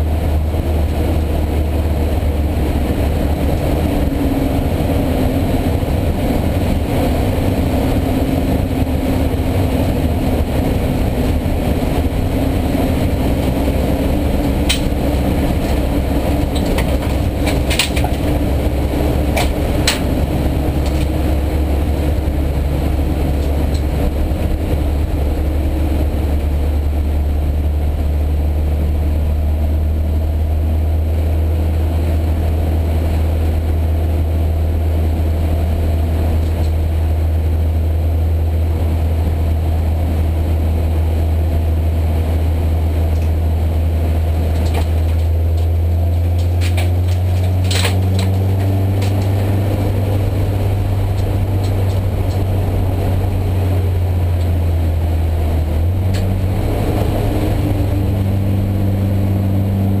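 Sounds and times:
race car engine running hard: 0:00.0 - 1:00.0
sharp rattles: 0:13.2 - 0:21.4.

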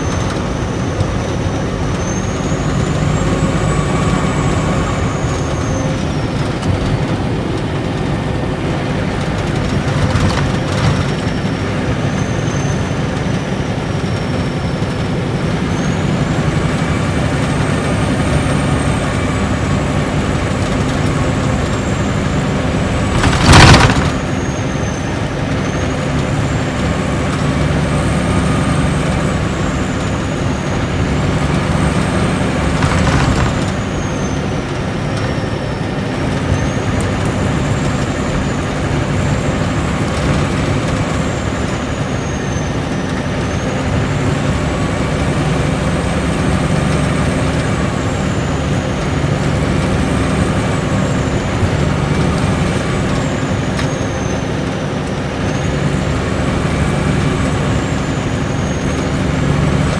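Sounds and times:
diesel engine drone: 0:00.0 - 0:59.9
loud rush of noise: 0:17.9 - 0:27.0, 0:28.2 - 0:36.1.

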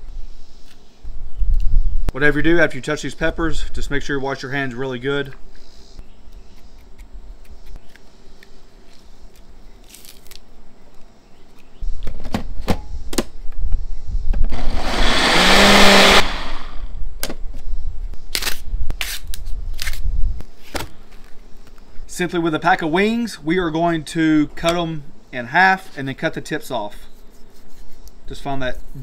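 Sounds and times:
blender motor running: 0:14.5 - 0:16.9.

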